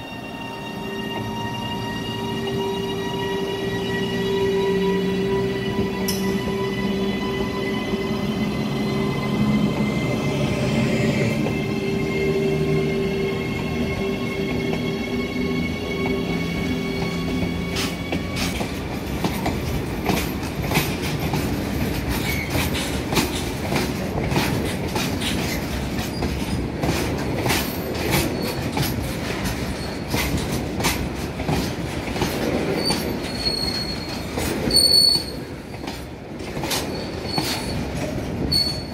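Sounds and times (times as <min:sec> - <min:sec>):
train wheels rumbling: 0:00.0 - 0:38.9
high-pitched wheel squeal: 0:32.8 - 0:35.5, 0:38.5 - 0:38.9.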